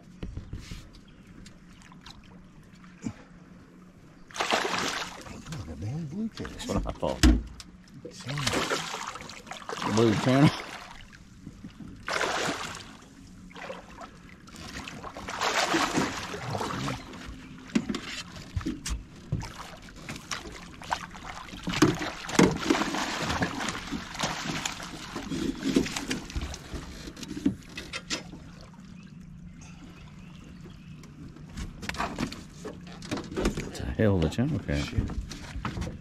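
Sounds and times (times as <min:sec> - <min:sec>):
fish thrashing and splashing: 0:04.3 - 0:05.4, 0:08.3 - 0:11.2, 0:12.0 - 0:17.8, 0:19.4 - 0:26.7.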